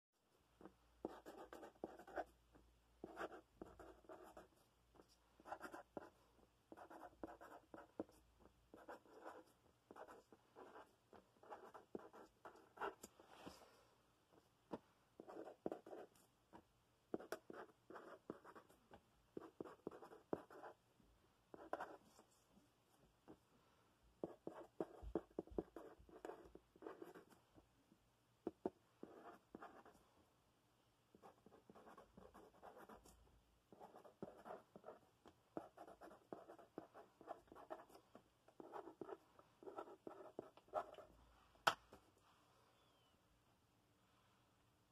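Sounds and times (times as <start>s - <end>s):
pen writing on paper: 1.0s - 2.3s, 3.0s - 4.5s, 5.4s - 6.1s, 6.7s - 13.0s, 17.2s - 18.6s, 19.4s - 20.7s, 21.6s - 22.0s, 24.2s - 27.2s, 29.0s - 29.9s, 31.2s - 33.0s, 33.7s - 35.0s, 35.6s - 38.0s, 38.6s - 41.0s.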